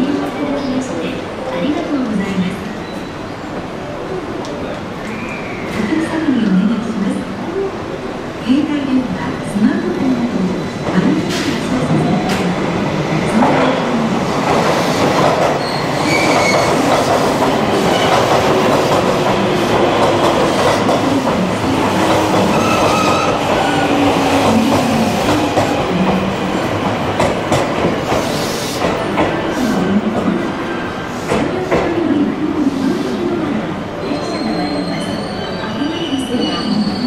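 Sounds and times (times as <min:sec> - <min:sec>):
train wheels rumbling on rail: 0:09.1 - 0:33.8.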